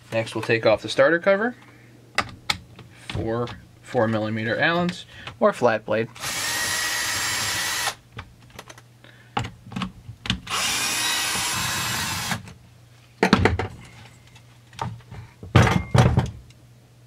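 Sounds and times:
cordless drill running: 6.2 - 8.0, 10.5 - 12.5
plastic knocks and clatter: 13.2 - 13.8.

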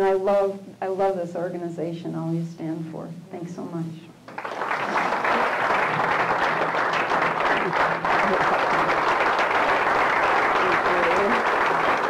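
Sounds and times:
crowd applauding: 4.3 - 12.0.

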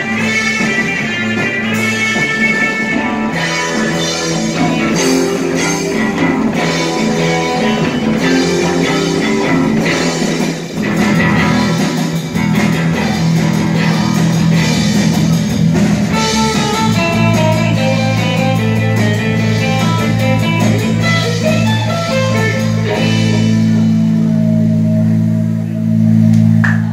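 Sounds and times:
amplified electric guitar: 0.0 - 26.9
drum kit: 0.0 - 26.9.

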